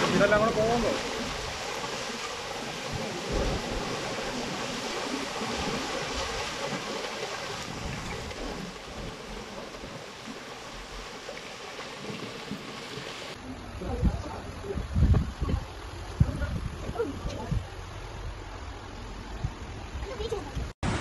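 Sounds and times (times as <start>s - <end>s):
rocks tumbling down slope: 0.0s - 13.4s.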